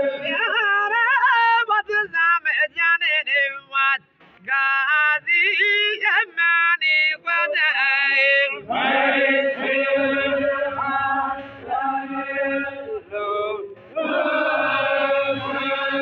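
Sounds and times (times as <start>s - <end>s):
men chanting in unison: 0.0s - 2.2s, 4.5s - 16.0s
man singing: 0.0s - 8.7s.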